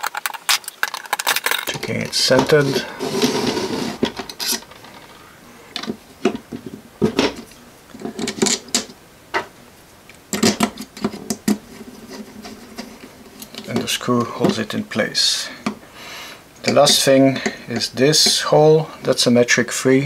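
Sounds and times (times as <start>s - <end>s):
plastic parts clicking and tapping: 0.0s - 2.6s, 4.0s - 9.5s, 10.3s - 14.6s
short scraping rustle: 1.9s - 5.2s.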